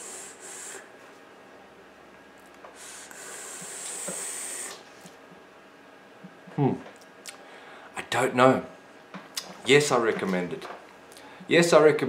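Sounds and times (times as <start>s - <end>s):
vape air hissing: 0.0s - 0.9s, 2.8s - 4.9s.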